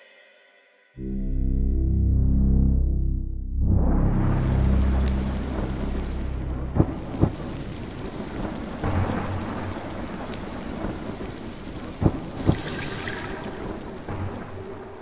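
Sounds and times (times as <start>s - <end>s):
dull low thumps: 1.0s - 10.1s
low rumble: 1.0s - 15.0s
rain-like noise wash: 4.0s - 15.0s.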